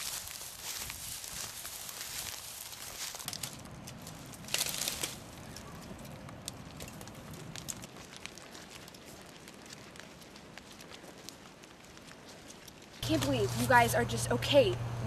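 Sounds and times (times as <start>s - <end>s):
footsteps crunching through dry leaves: 0.0s - 14.4s.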